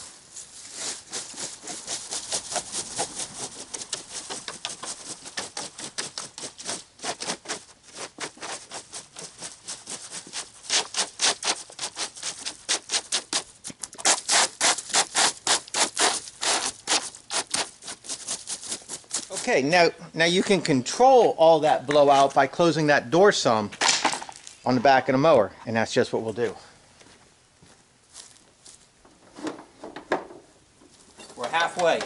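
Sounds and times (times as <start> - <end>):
rake scraping through dry leaves: 0.0 - 19.5.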